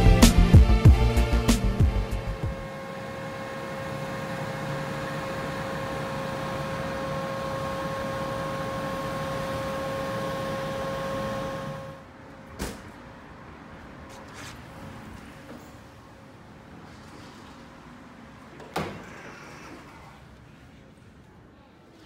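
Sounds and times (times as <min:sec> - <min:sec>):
jet engines humming and whining: 0:02.2 - 0:12.1.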